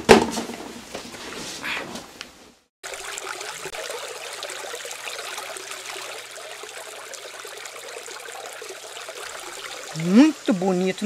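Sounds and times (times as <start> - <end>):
trickling running water: 2.8 - 11.0.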